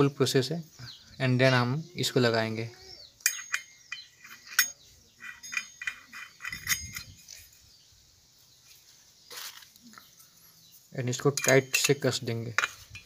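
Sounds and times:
metal blade clinking: 3.2 - 7.6, 11.2 - 13.0.

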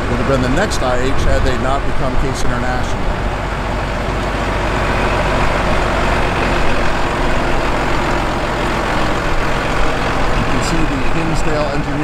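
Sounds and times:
tractor diesel engine passing: 0.0 - 12.0.

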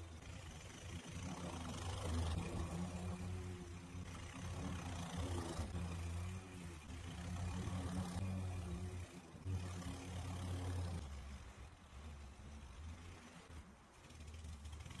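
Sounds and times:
lawn mower cutting grass: 0.0 - 15.0.

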